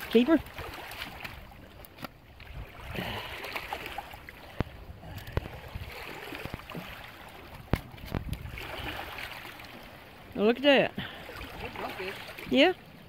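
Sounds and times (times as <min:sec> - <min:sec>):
water lapping on rocky shore: 0:00.0 - 0:13.0
wind buffeting microphone: 0:04.1 - 0:09.3.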